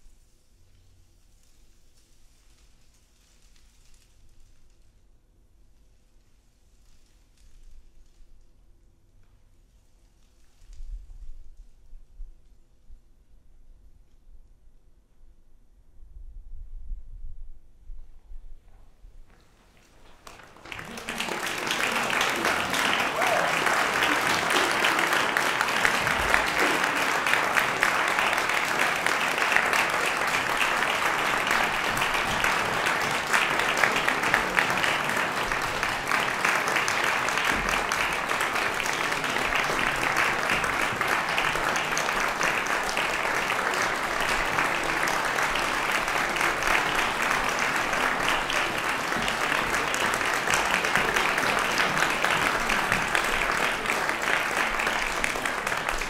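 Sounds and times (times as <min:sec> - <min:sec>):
audience applauding: 0:19.8 - 0:56.0.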